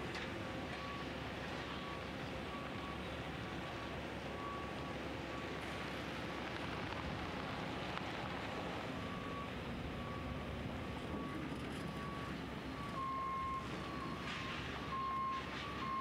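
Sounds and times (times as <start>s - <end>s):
wind: 0.0s - 16.0s
vehicle backup alarm beeping: 0.6s - 3.4s, 4.2s - 5.9s, 8.9s - 16.0s
lower-pitched backup beeper: 11.1s - 16.0s.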